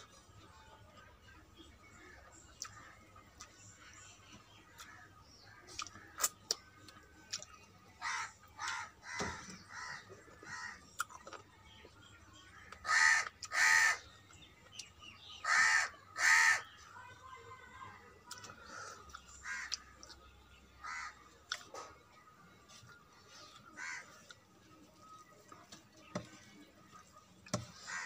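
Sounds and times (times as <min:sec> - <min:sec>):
crow cawing: 0:08.0 - 0:10.8, 0:12.8 - 0:14.0, 0:15.4 - 0:16.7, 0:19.4 - 0:19.8, 0:20.8 - 0:21.2, 0:23.8 - 0:24.2, 0:27.8 - 0:28.0.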